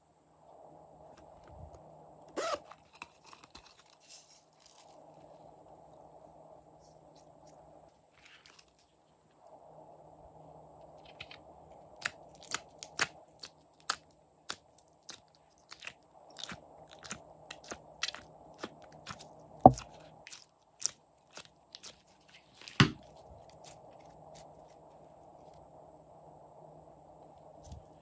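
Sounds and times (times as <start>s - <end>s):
sticky slime clicking and crackling: 12.0s - 22.0s.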